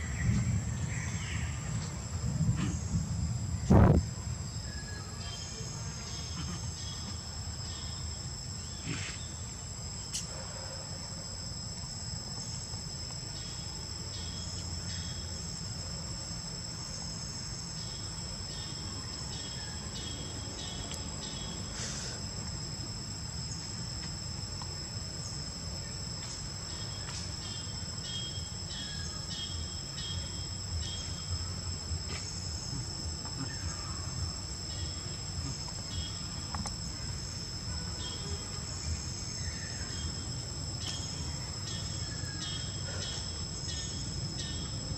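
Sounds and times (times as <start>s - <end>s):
quick insect chirps: 0.0s - 44.9s
high-pitched insect drone: 11.3s - 44.9s.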